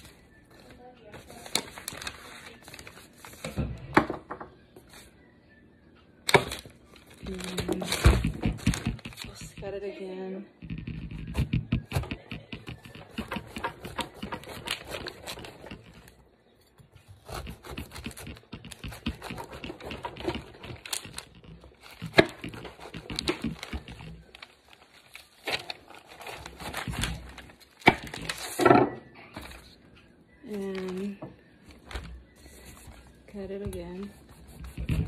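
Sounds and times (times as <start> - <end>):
knife cutting fruit rind: 17.1 - 21.1.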